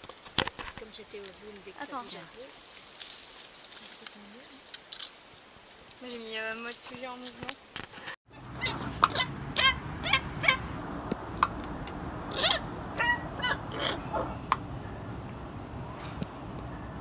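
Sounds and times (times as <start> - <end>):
hornbills honking calls: 8.3 - 15.1.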